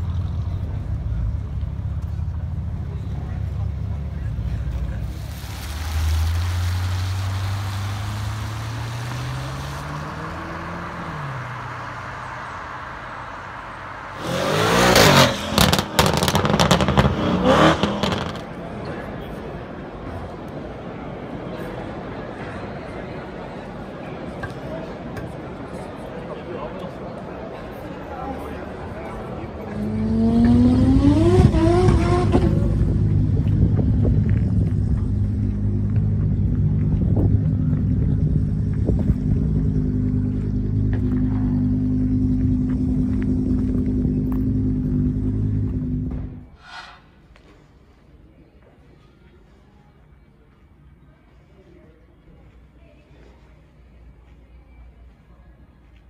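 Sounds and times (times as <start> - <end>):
car engine accelerating: 0.0 - 18.4, 29.6 - 46.5
exhaust crackles: 0.0 - 18.6, 29.8 - 46.6
engine revving hard: 14.2 - 18.3, 29.8 - 32.7
tyre squeal: 46.6 - 47.2.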